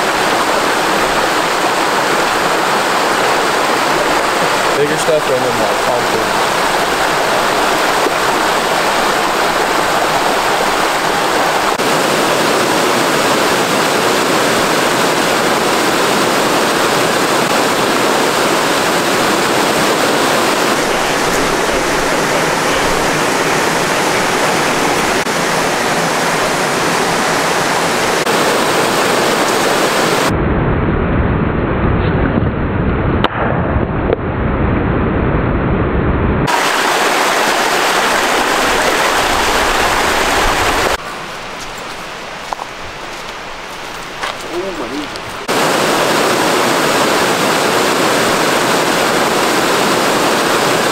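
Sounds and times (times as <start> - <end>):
creek rushing over rocks: 0.0 - 30.3, 36.5 - 50.9
low rumble: 30.3 - 36.5.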